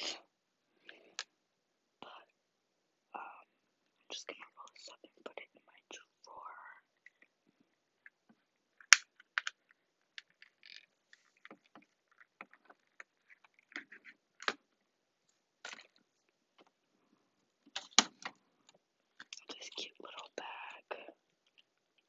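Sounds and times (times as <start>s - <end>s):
small items clicking and rustling: 8.8s - 14.6s.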